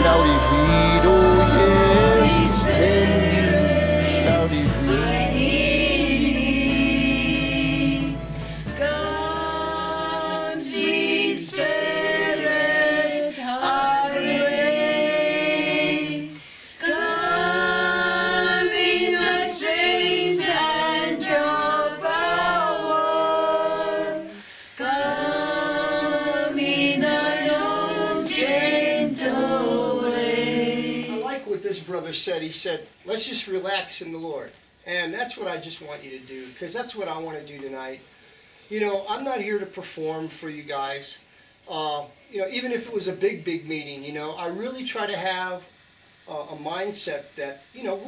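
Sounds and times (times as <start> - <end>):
group singing worship song: 0.0 - 31.6.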